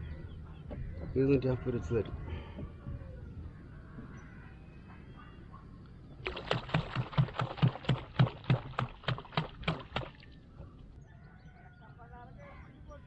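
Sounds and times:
rapid sharp knocks: 6.5s - 10.1s.

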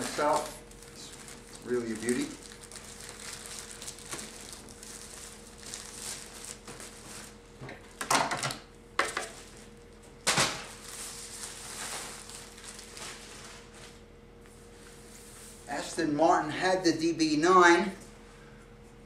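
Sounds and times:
plastic wrapping crinkling: 0.0s - 7.4s, 10.7s - 14.0s.

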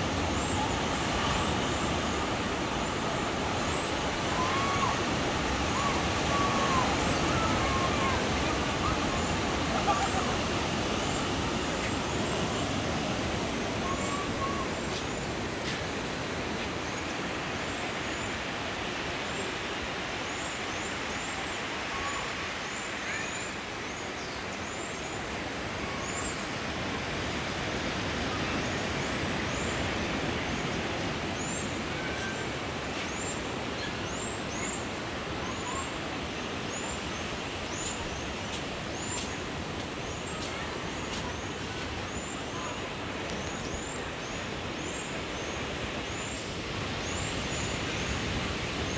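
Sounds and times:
surf rushing: 0.0s - 20.3s
wind: 0.0s - 48.9s.

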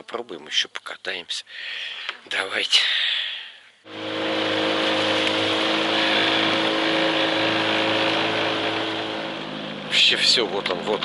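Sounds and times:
water rushing along hull: 3.9s - 9.6s
outboard motor running: 3.9s - 11.0s.

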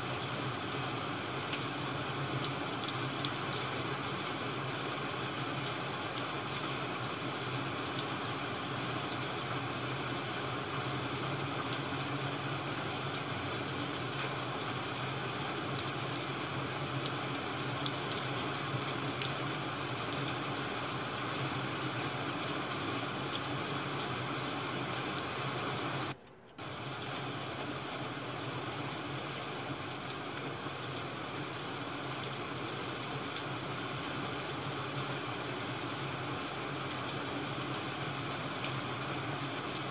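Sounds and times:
rain hiss: 0.0s - 39.9s.

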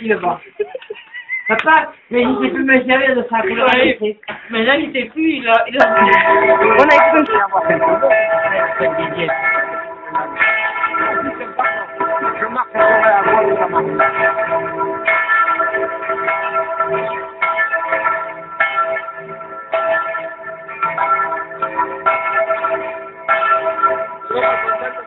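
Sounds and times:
church bell ringing: 5.7s - 25.0s.

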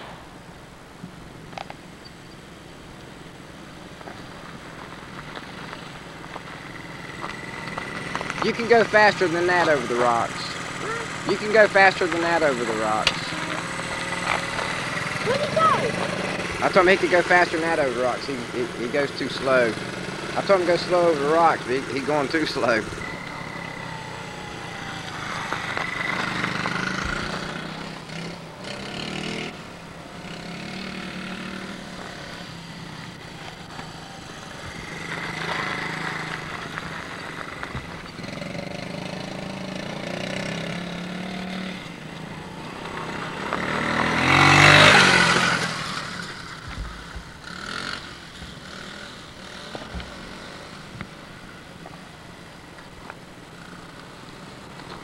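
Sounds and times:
minibike engines revving: 2.3s - 55.0s.

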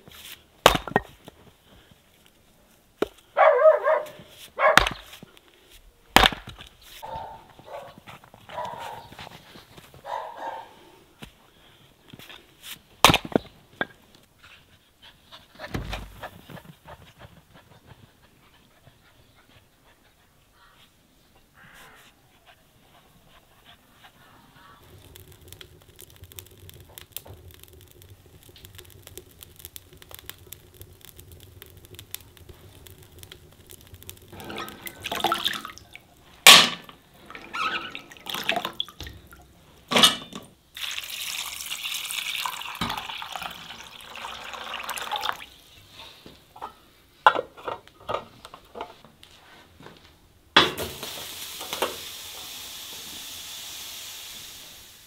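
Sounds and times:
water splashing in a bowl: 24.8s - 36.3s, 37.3s - 39.6s, 40.8s - 45.6s
water pouring: 24.8s - 39.8s, 40.7s - 45.8s.

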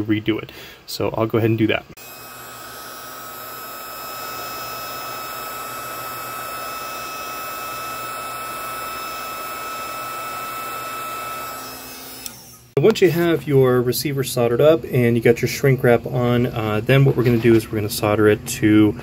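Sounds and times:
heat gun blowing air: 2.0s - 12.8s.

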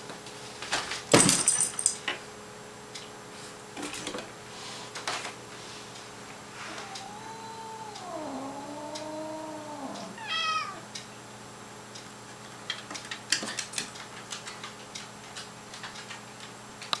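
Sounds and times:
cat yowling: 6.6s - 10.9s
light clicks and taps: 12.0s - 17.0s.

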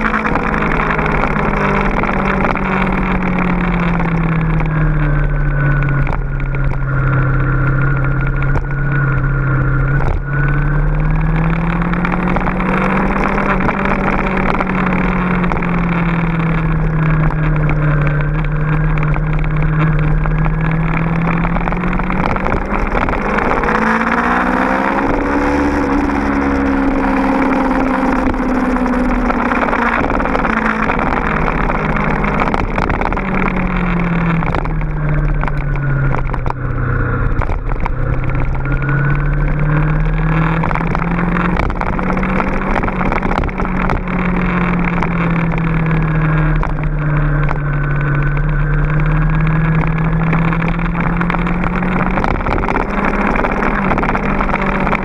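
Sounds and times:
motorcycle engine accelerating: 0.0s - 55.0s
wind and road noise: 0.0s - 55.0s.

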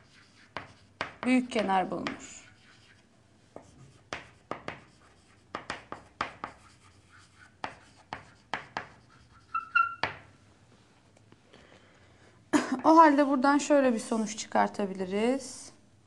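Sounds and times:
chalk tapping and scraping: 0.0s - 10.2s
chalk squeak: 9.0s - 10.1s.

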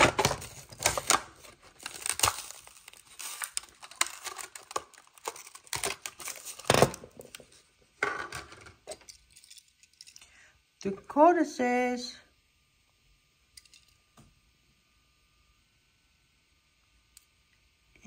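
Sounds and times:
cardboard ripping: 0.0s - 7.0s
plastic crinkling: 0.0s - 7.6s.

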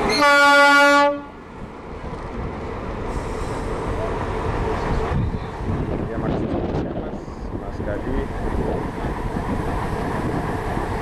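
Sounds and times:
low train rumble: 0.0s - 11.0s
train horn toot: 0.1s - 1.4s.

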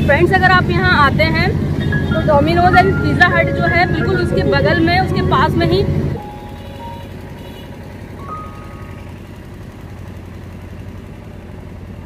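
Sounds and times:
vehicle engine rumble: 0.0s - 12.0s
faint high tone: 2.0s - 9.1s.

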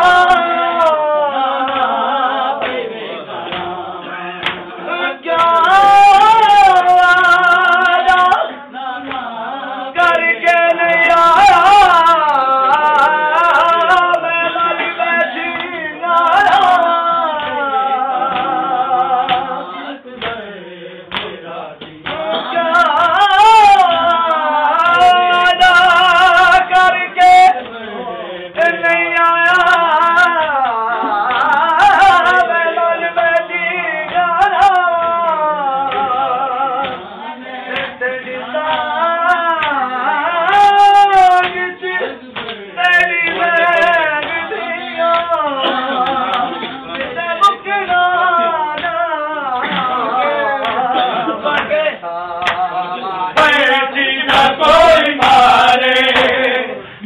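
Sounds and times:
men singing a lament: 0.0s - 57.0s
chest-beating slaps: 2.6s - 4.8s, 17.4s - 19.6s, 20.2s - 22.5s, 35.8s - 38.9s, 42.3s - 48.1s, 52.4s - 52.7s.

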